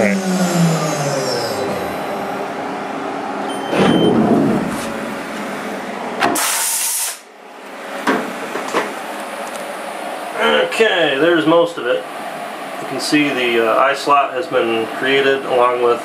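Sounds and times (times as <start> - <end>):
short loud hiss: 6.4 - 7.2.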